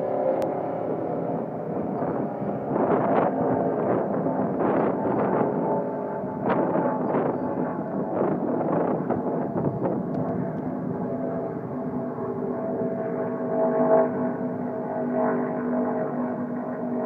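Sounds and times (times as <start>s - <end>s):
wind buffeting microphone: 0.0s - 13.3s
distant race car engine drone: 0.0s - 17.0s.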